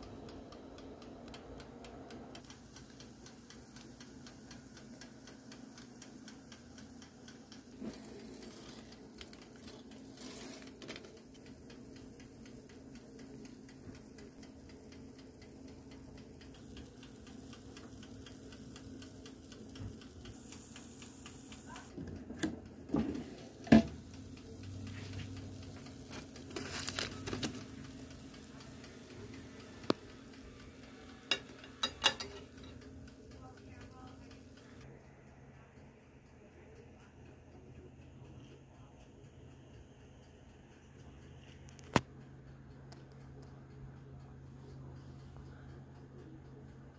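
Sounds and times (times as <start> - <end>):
low steady hum: 0.0 - 46.9
timer ticking: 0.0 - 46.9
utensil clanking on metal tray: 31.3 - 32.8.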